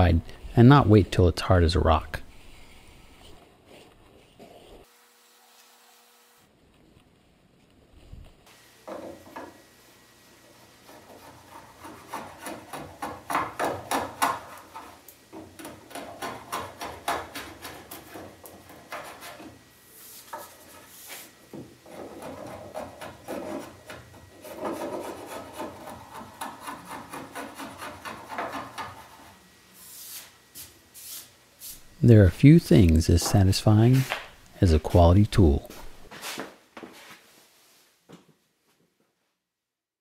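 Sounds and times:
plane blade scraping wood: 10.8s - 15.0s, 15.6s - 29.4s.

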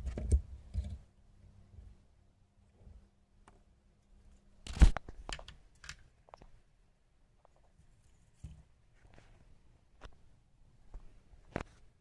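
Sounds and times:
small clicks and rustles: 4.3s - 6.6s.

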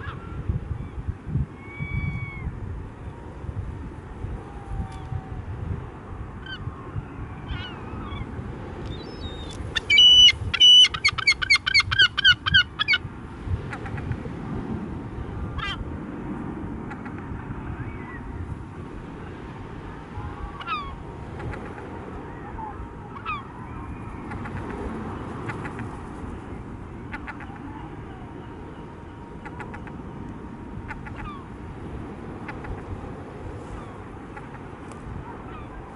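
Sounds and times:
gulls calling: 0.0s - 3.4s, 6.3s - 13.1s, 19.2s - 35.9s
steady low rush: 0.0s - 35.9s.

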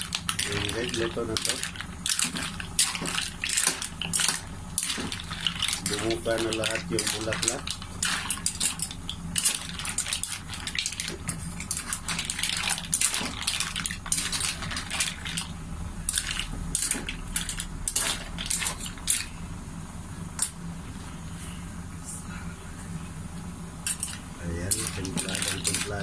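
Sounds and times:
mussel shells clattering in metal wok: 0.0s - 15.5s, 16.1s - 19.3s, 23.9s - 26.0s.

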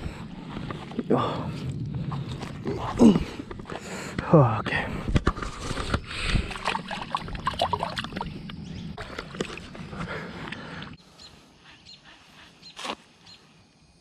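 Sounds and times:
faint bird chirps: 11.0s - 14.0s.

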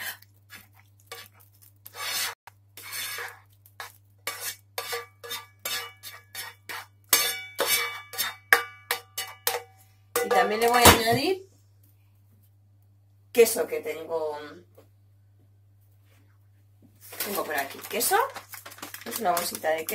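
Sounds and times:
utensil scraping frying pan: 1.1s - 10.8s.

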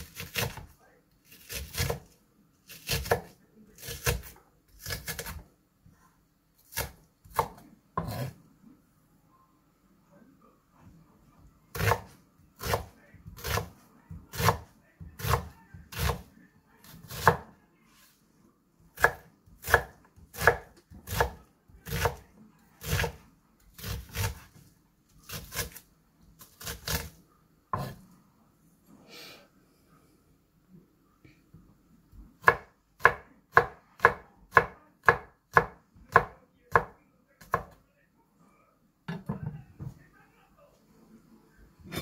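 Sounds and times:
knife chopping on wooden board: 0.0s - 0.7s, 1.4s - 2.0s, 2.8s - 5.4s, 6.7s - 8.4s, 11.7s - 16.3s, 17.0s - 17.5s, 19.0s - 22.2s, 22.8s - 23.2s, 23.8s - 24.6s, 26.6s - 28.0s, 32.4s - 37.7s.

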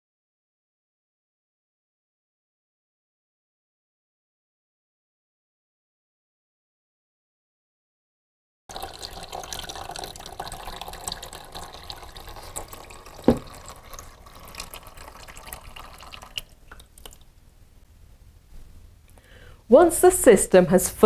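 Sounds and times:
liquid splashing into plastic basin: 8.7s - 17.3s.

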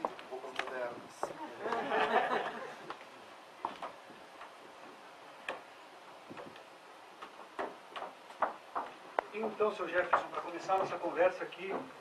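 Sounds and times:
room hiss: 0.0s - 12.0s
light clicks and knocks: 3.6s - 5.7s, 6.3s - 9.3s, 10.0s - 12.0s.

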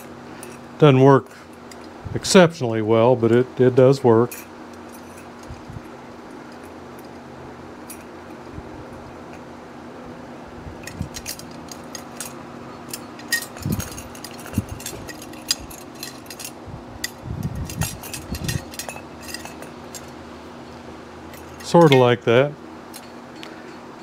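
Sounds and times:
spokes clinking and rattling: 4.2s - 7.2s, 7.8s - 9.5s, 10.8s - 20.4s, 21.2s - 24.0s.

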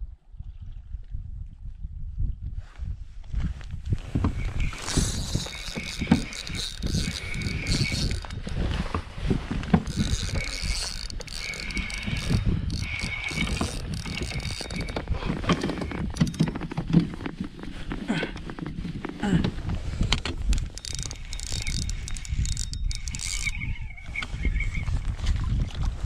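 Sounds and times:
wind rumbling on microphone: 0.0s - 26.0s
gear drive whirring and clicking: 4.3s - 17.1s, 20.0s - 24.5s.

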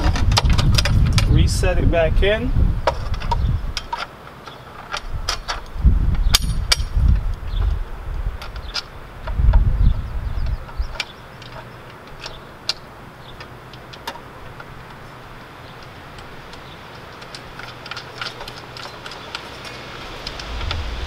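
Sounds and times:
low rumble: 19.8s - 21.0s.

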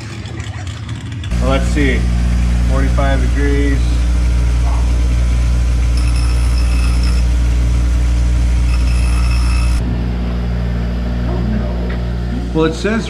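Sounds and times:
bench grinder motor humming: 1.3s - 11.0s
high-pitched grinding whine: 1.3s - 13.0s.

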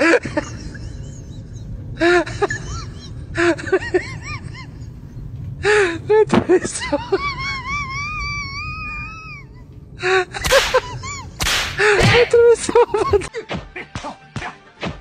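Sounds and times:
person crying and gasping: 5.6s - 14.6s.

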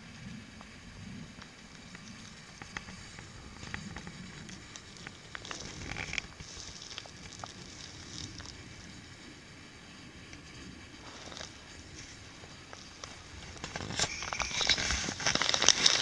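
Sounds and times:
low outdoor rumble: 0.0s - 16.0s
crackling and sharp clicks: 1.4s - 8.7s, 11.1s - 16.0s.

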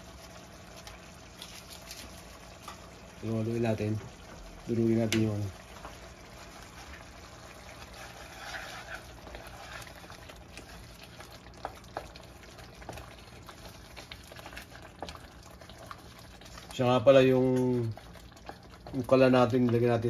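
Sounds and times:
sauce bubbling softly: 0.0s - 20.0s
wooden spoon stirring sauce: 5.0s - 20.0s.

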